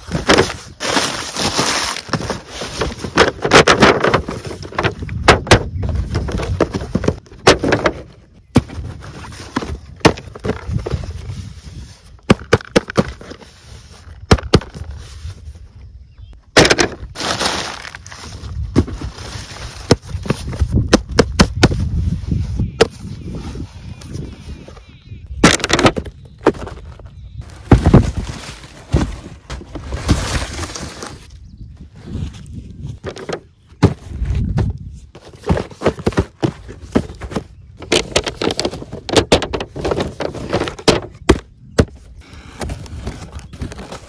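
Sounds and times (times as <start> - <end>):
cardboard boxes tapping and knocking: 0.0 - 11.2, 12.2 - 13.5, 14.2 - 14.9, 19.7 - 21.8, 25.4 - 30.8, 33.0 - 42.0
newspaper rustling and crinkling: 0.0 - 15.6, 16.6 - 24.8, 25.4 - 31.4, 32.0 - 41.4, 42.3 - 44.0.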